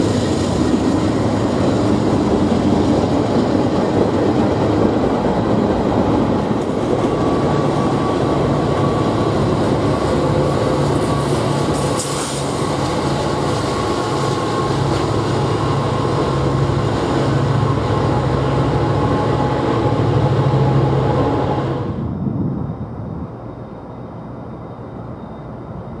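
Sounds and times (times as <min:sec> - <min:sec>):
locomotive engines droning: 0:00.0 - 0:26.0.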